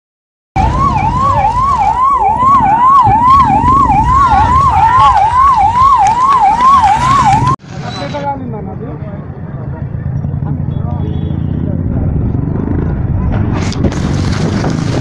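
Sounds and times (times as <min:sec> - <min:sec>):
loud low rumble: 0:00.6 - 0:05.9
electronic siren sweeps: 0:00.6 - 0:07.6.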